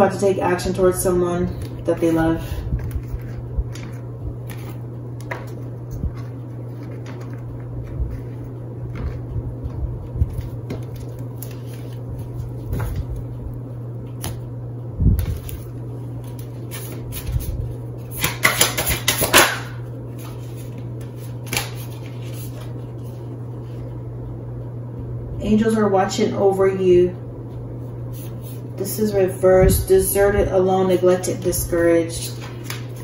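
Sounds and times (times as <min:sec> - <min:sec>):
steady low hum: 0:00.0 - 0:33.0
crisp card shuffling: 0:02.8 - 0:13.2, 0:20.1 - 0:23.8, 0:32.2 - 0:33.0.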